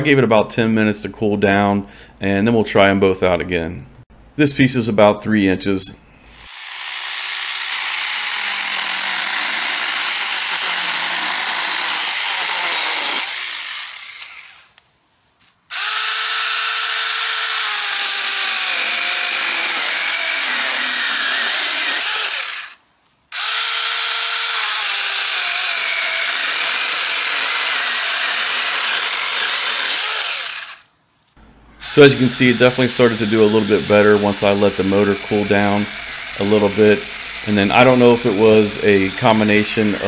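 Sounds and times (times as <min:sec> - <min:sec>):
electric motor winding down: 0:06.3 - 0:14.8, 0:15.7 - 0:22.8, 0:23.4 - 0:30.8, 0:31.8 - 0:40.0
mini chainsaw cutting wood: 0:06.3 - 0:14.8, 0:15.7 - 0:30.9, 0:31.8 - 0:40.0.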